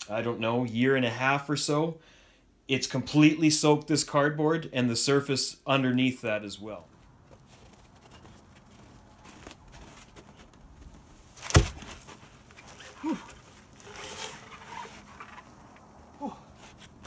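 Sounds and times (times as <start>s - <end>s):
shuffling: 6.7s - 17.0s
log thudding on snowy ground: 8.7s - 12.3s
person grunting: 13.0s - 13.4s, 16.2s - 16.5s.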